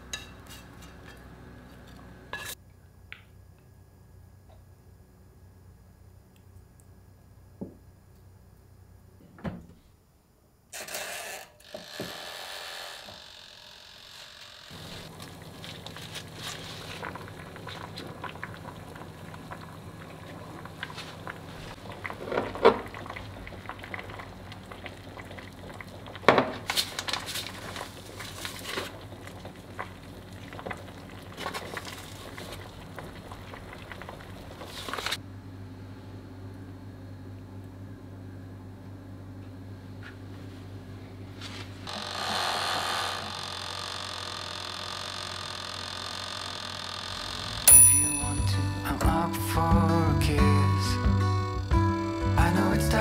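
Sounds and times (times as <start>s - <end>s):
broth simmering and bubbling: 14.8s - 35.2s.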